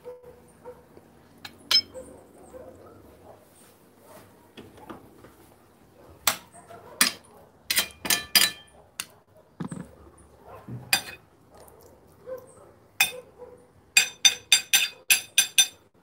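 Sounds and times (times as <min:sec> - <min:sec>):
metal spoon clinking on plates: 0:01.4 - 0:02.0, 0:07.0 - 0:08.7, 0:10.9 - 0:11.2, 0:14.0 - 0:15.9.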